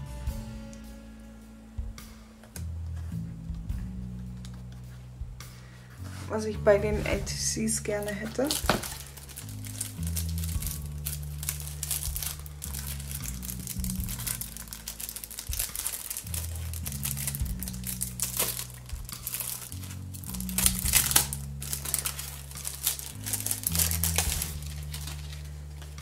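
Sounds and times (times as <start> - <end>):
slow background music: 0.0 - 26.0
crinkling and rustling handling noise: 2.4 - 5.1, 5.9 - 26.0.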